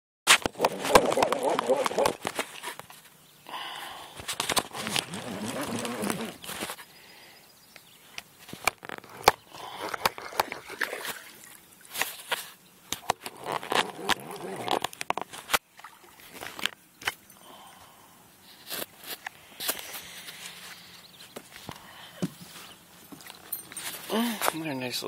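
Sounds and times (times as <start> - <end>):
fish thrashing and splashing: 0.4 - 2.7, 9.0 - 12.3.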